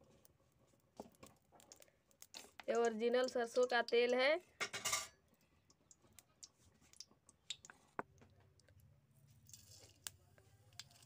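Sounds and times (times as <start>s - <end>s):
seeds sizzling in oil: 0.9s - 4.7s, 9.2s - 11.0s.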